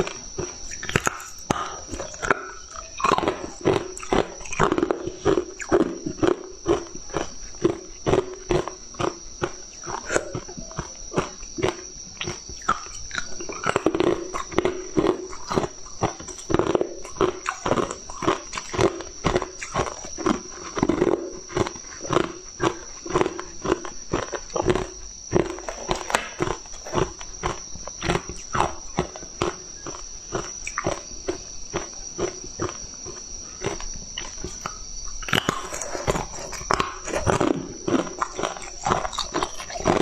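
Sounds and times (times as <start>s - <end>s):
chewing crunchy ice: 0.0s - 40.0s.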